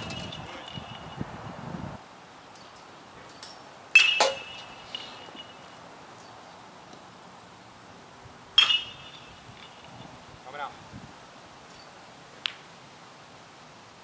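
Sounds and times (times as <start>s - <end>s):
metal bat hitting ball: 4.0s - 5.5s, 8.6s - 9.3s.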